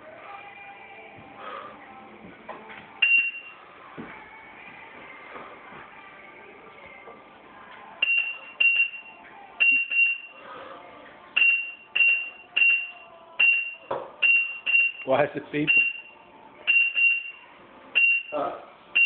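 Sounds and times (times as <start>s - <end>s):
short high beeps: 3.0s - 3.5s, 8.0s - 10.3s, 11.4s - 15.0s, 16.7s - 17.4s.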